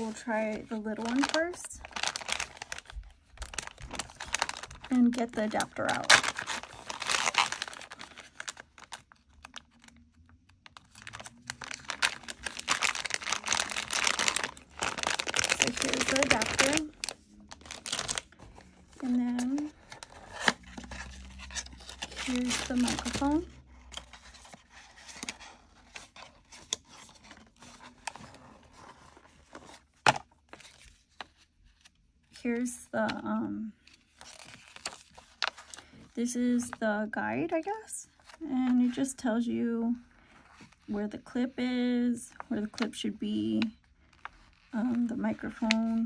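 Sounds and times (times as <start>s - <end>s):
plastic bag crinkling: 0.0s - 23.5s.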